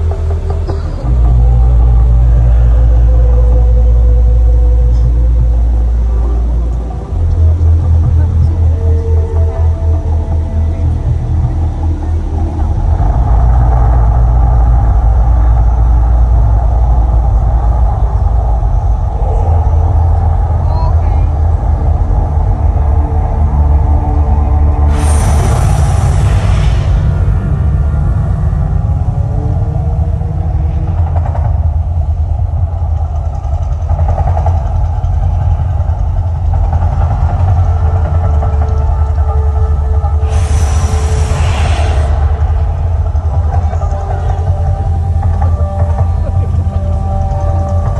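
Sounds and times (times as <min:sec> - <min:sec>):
deep rumble from sound system: 0:00.0 - 0:47.9.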